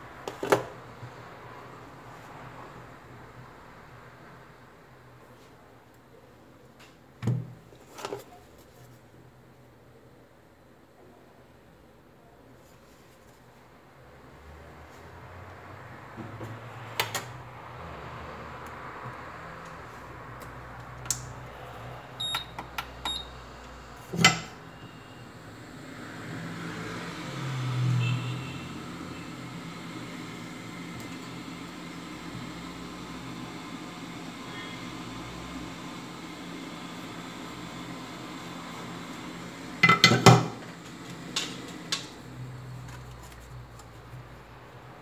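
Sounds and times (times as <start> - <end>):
hot air blower rushing: 21.3 - 42.6
short beeps: 22.2 - 23.3, 24.7 - 25.2.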